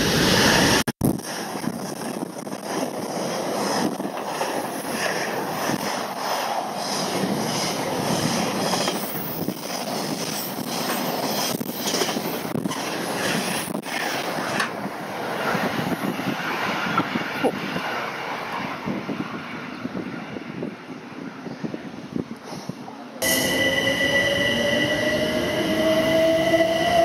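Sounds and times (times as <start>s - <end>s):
freight train wagons passing: 0.0s - 20.6s
train wheels clicking: 1.6s - 14.8s.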